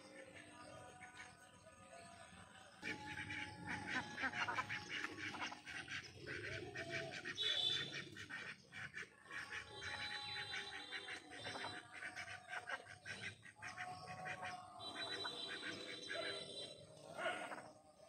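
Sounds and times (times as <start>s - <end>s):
ducks quacking: 0.0s - 18.0s.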